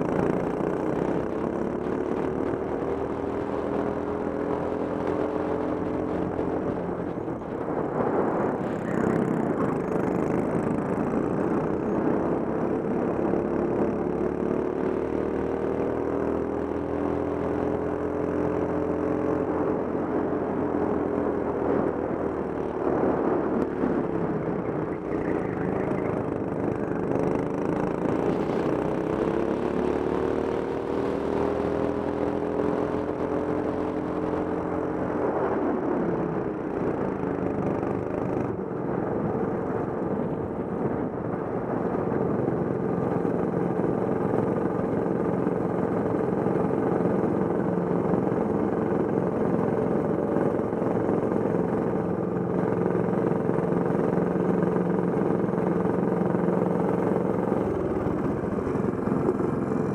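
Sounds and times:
kart engine revving: 0:24.8 - 0:34.9.

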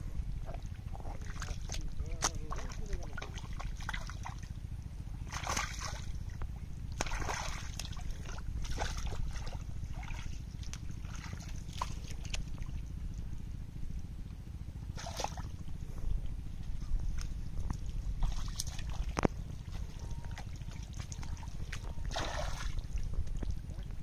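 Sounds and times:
steady low rumble: 0:00.0 - 0:24.0
hands splashing in shallow water: 0:05.3 - 0:06.2, 0:06.9 - 0:12.7, 0:14.9 - 0:15.5, 0:17.1 - 0:23.0.

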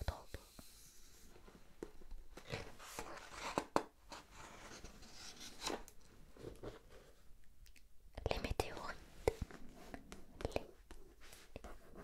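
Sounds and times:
book page turning: 0:02.4 - 0:06.8.

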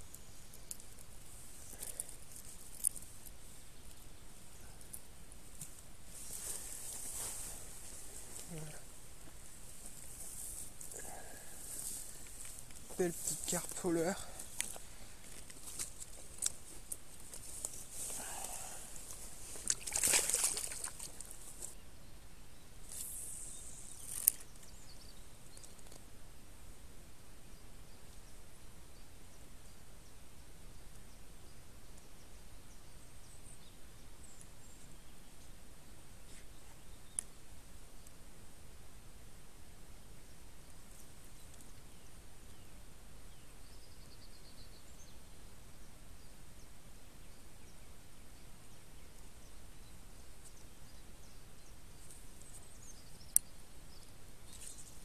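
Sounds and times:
outdoor background noise: 0:00.0 - 0:55.0
water splashing: 0:19.6 - 0:21.4.

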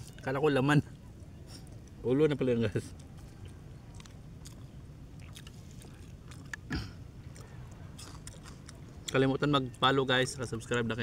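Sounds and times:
low steady rumble: 0:00.0 - 0:11.0
man chewing raw fish: 0:02.9 - 0:09.2.

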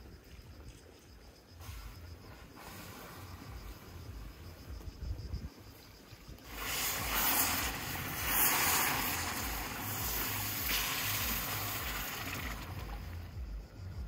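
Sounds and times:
water splashing into a pot: 0:06.5 - 0:13.2.

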